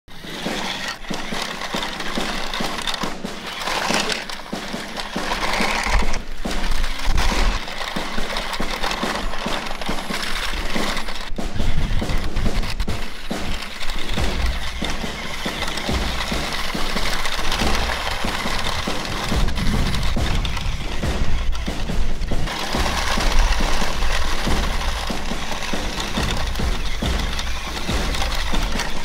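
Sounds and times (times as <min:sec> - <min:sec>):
toy truck tyres crunching on dirt: 0:00.1 - 0:29.0
low rumble: 0:17.5 - 0:25.1.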